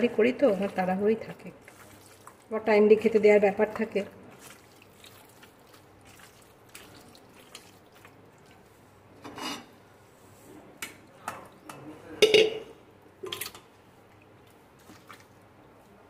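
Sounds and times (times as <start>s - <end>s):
metal cookware knocking: 12.2s - 12.7s.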